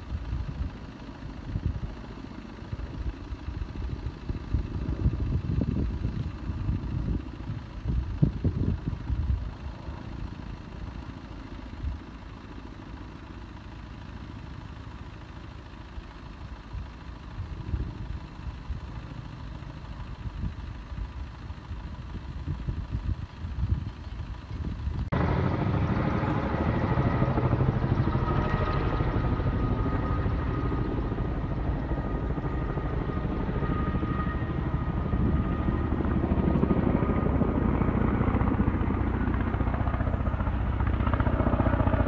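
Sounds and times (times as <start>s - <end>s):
distant helicopter rumble: 0.0s - 42.0s
wind buffeting microphone: 2.6s - 10.6s, 19.8s - 42.0s.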